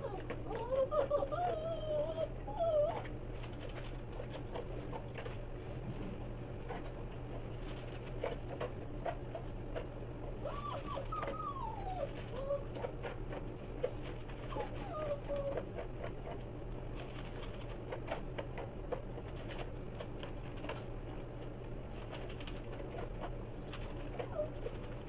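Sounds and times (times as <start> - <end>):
dog whining: 0.0 - 3.2, 10.4 - 13.1, 14.4 - 16.1, 24.0 - 24.8
steady low hum: 0.0 - 25.0
dog eating kibble from steel bowl: 3.0 - 5.4, 6.7 - 16.4, 17.0 - 25.0.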